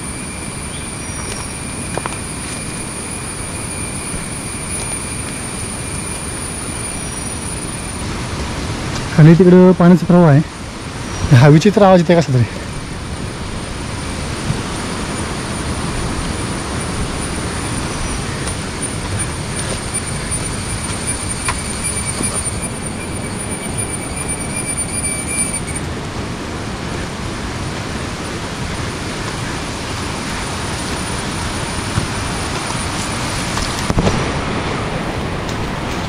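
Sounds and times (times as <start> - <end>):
thin high-pitched whine: 0.0 - 8.4, 9.2 - 25.9.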